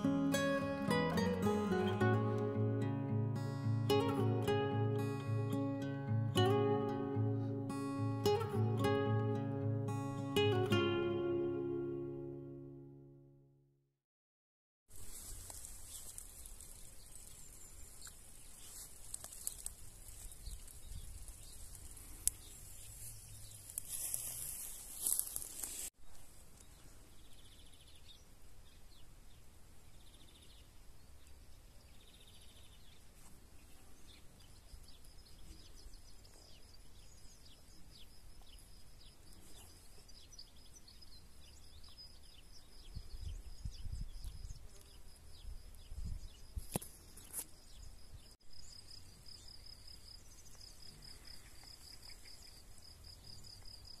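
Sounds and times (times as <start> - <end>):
bird chirps: 30.0 - 54.0.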